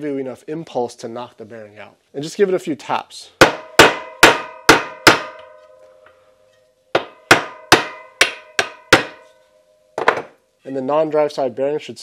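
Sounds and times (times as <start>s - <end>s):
mallet tapping metal axle: 3.4s - 6.2s, 7.0s - 9.4s.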